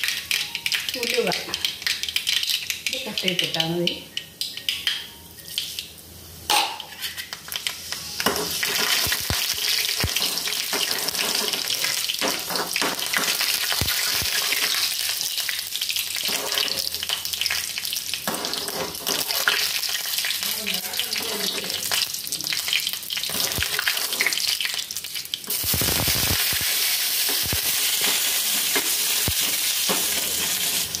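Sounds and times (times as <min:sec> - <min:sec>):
seeds sizzling in hot oil: 0:00.0 - 0:04.9, 0:07.2 - 0:31.0
spoon scraping a pan: 0:06.8 - 0:07.4.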